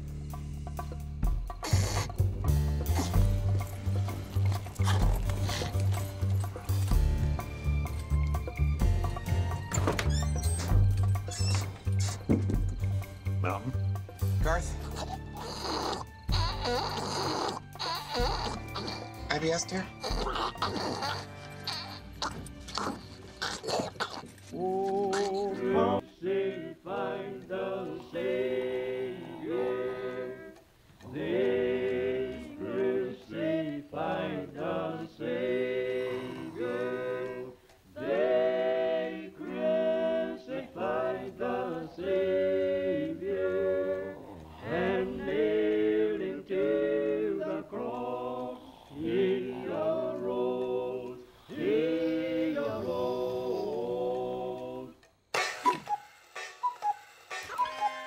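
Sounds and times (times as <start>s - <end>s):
voices singing a cappella: 24.5s - 55.9s.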